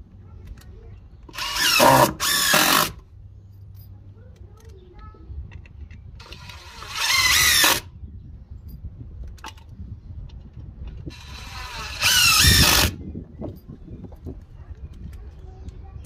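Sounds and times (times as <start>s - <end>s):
impact driver driving screws: 1.3s - 3.0s, 6.2s - 7.8s, 11.0s - 13.0s.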